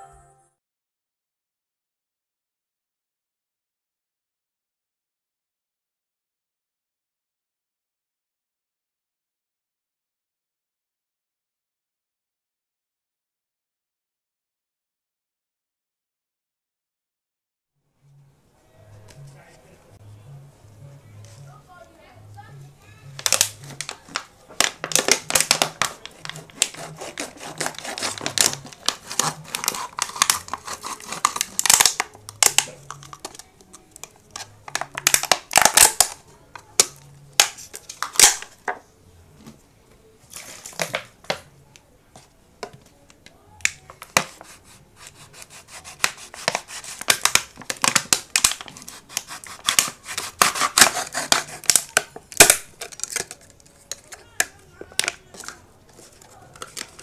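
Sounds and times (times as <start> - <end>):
plastic bottle crackling: 23.2 - 38.8, 40.3 - 41.5, 43.6 - 57.0
knife sawing through plastic: 24.9 - 31.8, 44.2 - 47.4, 48.5 - 52.0.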